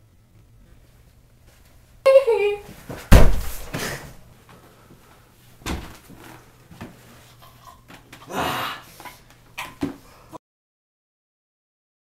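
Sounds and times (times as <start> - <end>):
body falling with rustling thud: 2.9 - 4.1
dull thump: 3.1 - 3.8.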